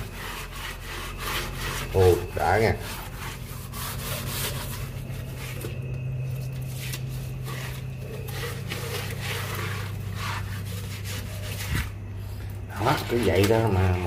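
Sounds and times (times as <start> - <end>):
scouring pad scrubbing wet metal: 0.0 - 12.0, 12.7 - 14.0
steady low hum: 0.0 - 14.0.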